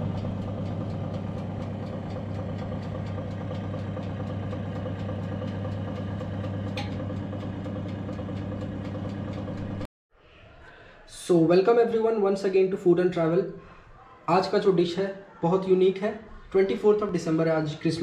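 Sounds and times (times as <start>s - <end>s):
engine humming with ticking: 0.0s - 9.9s.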